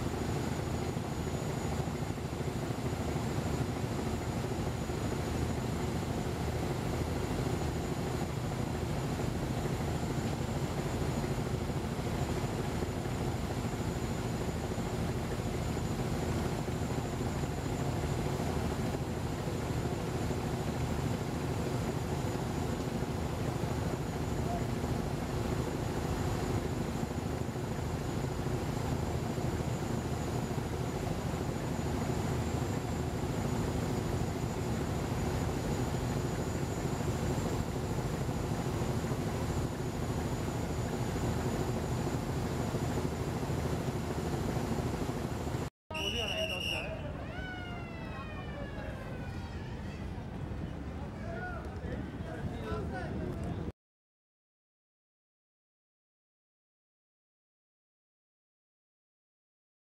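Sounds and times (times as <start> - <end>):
ship diesel engine drone: 0.0 - 51.2.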